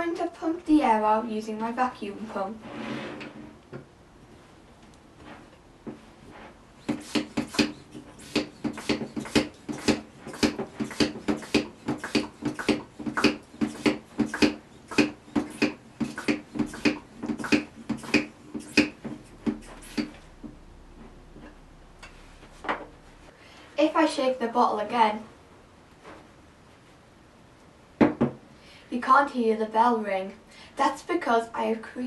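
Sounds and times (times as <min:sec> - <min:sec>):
hand vacuum pump strokes: 0:06.2 - 0:20.2.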